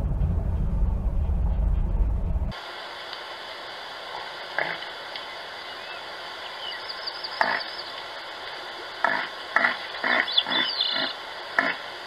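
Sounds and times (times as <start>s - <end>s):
bird twittering faintly: 4.6s - 11.8s.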